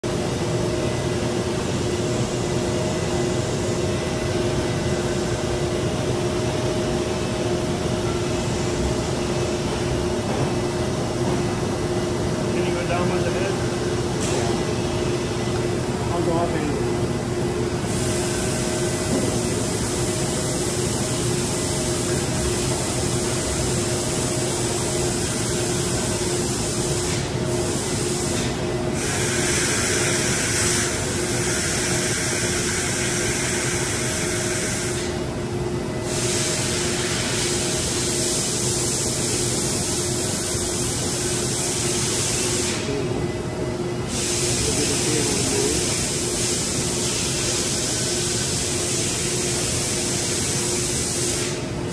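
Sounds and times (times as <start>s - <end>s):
cnc router steady tone: 0.0s - 51.9s
loud air hiss: 17.8s - 35.2s, 36.0s - 42.9s, 44.1s - 51.7s.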